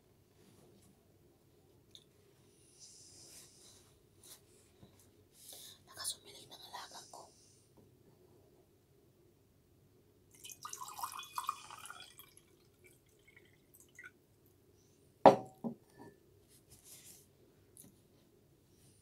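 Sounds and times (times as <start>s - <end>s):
water dripping: 10.3s - 14.2s
water pouring into a glass: 10.3s - 14.2s
hard knock: 15.3s - 15.8s.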